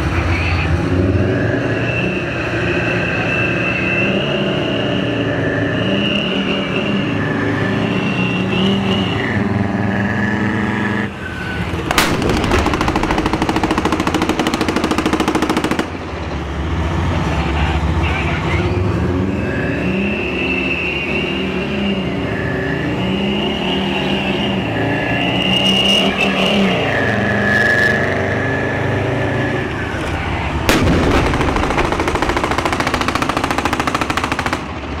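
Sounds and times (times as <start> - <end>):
tank diesel engines revving: 0.0 - 35.0
loud bang: 30.7 - 32.9.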